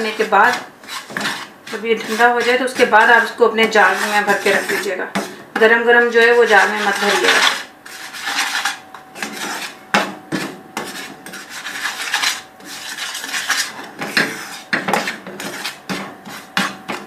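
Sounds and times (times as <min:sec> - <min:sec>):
spoon scraping frying pan: 0:00.0 - 0:09.8.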